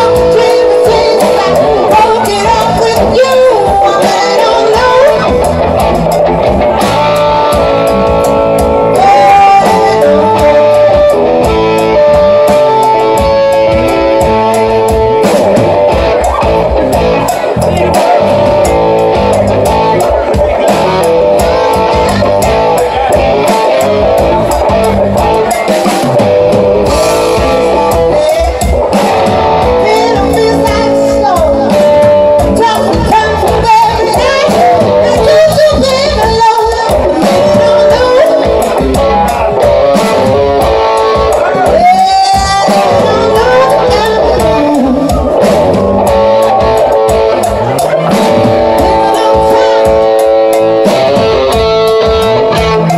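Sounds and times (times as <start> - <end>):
woman singing: 0.0 - 5.4, 9.0 - 11.1, 29.8 - 38.7, 41.5 - 45.3
electric guitar: 0.0 - 52.9
live rock band playing: 0.0 - 52.9.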